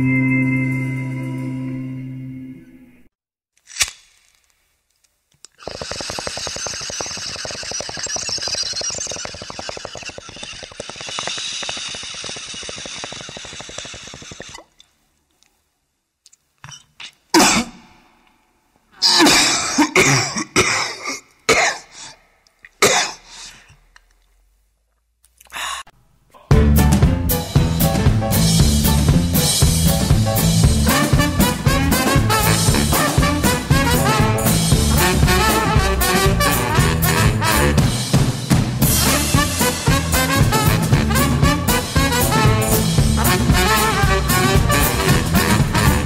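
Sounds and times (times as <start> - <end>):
dense crackling noise: 4.5 - 14.7
person clearing throat: 17.3 - 17.9, 19.0 - 22.2, 22.8 - 23.4, 26.3 - 26.6
person coughing: 17.3 - 17.9, 19.0 - 22.2, 22.8 - 23.6.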